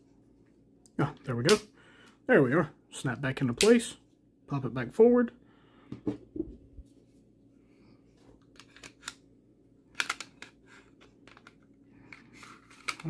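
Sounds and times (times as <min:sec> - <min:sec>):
pistol parts clicking: 0:09.9 - 0:10.5.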